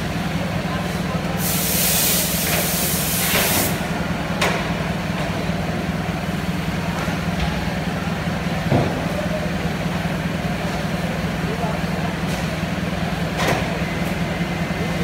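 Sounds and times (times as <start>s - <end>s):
loud hiss: 1.4s - 3.8s.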